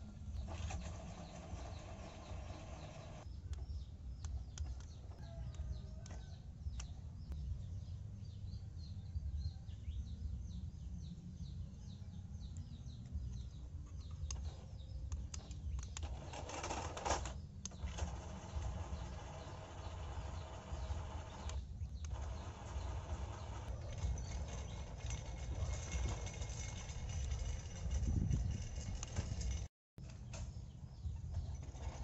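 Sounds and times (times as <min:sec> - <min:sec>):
low outdoor rumble: 0:00.0 - 0:32.0
small birds chirping: 0:00.0 - 0:32.0
toy electric motor whirring: 0:00.6 - 0:03.2, 0:15.8 - 0:29.5.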